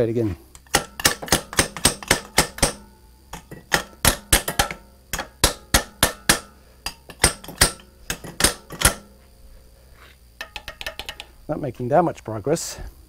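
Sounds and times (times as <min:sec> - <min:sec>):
hammer tapping on metal pliers: 0:00.6 - 0:09.1, 0:10.4 - 0:11.3.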